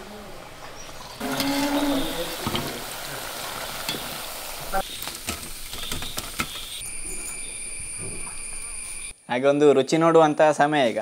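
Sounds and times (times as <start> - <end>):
hot oil sizzling: 0.3 - 9.1.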